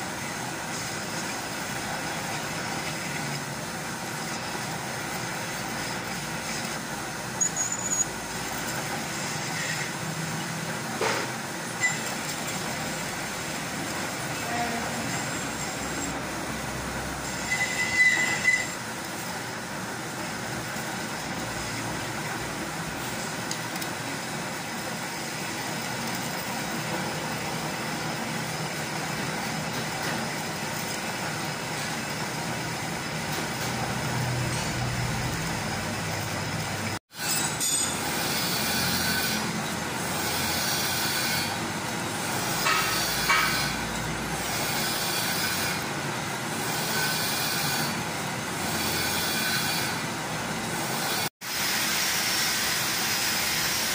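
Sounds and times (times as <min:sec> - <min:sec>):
metal lathe machining: 0:00.0 - 0:53.9
high squeal: 0:07.4 - 0:08.2, 0:14.5 - 0:16.3, 0:17.2 - 0:18.9.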